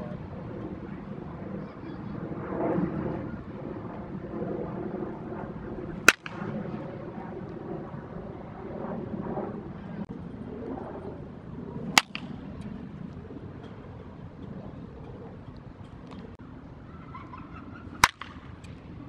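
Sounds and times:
baseball bat cracking ball: 5.9 - 6.6, 11.9 - 12.7, 17.9 - 19.0.

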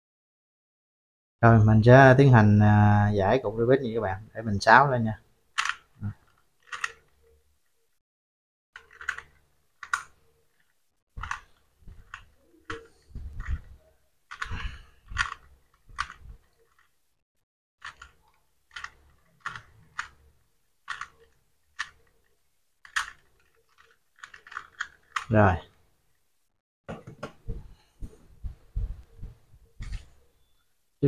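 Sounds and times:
puzzle cube layers clicking: 5.6 - 7.4, 8.8 - 17.0, 17.8 - 25.6.

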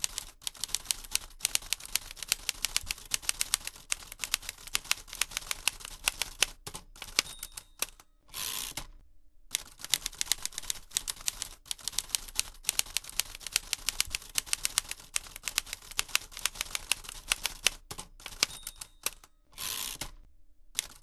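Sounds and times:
typewriter carriage return: 5.4 - 8.9, 15.2 - 20.2
typewriter key strikes: 6.6 - 8.0, 17.4 - 19.3.

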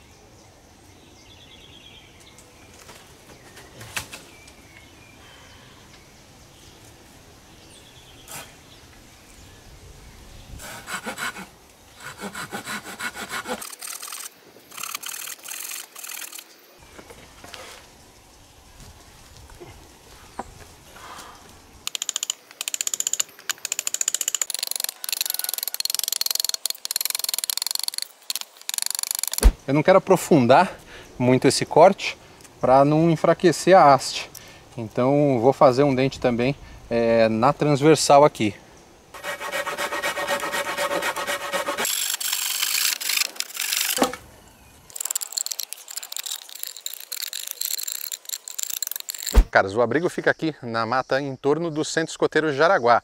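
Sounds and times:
hand saw cutting wood: 10.6 - 16.4, 39.2 - 44.2.

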